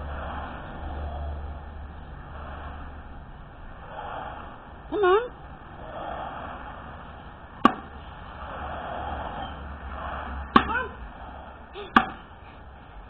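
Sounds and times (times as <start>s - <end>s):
axe chopping log: 7.6s - 7.9s, 10.5s - 10.8s, 11.9s - 12.2s.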